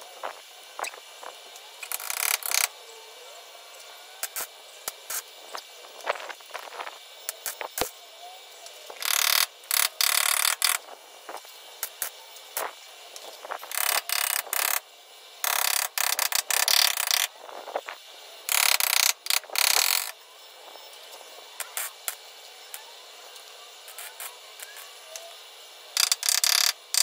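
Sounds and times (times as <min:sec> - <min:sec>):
welding arc bursts: 0:00.0 - 0:02.8, 0:04.0 - 0:08.0, 0:08.9 - 0:27.0
small clicks: 0:03.8 - 0:06.6, 0:26.0 - 0:27.0.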